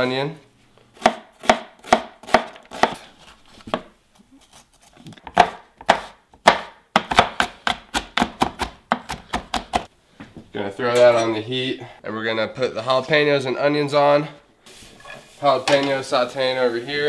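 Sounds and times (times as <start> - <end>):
knife chopping on wooden board: 1.0 - 3.0, 5.2 - 9.9.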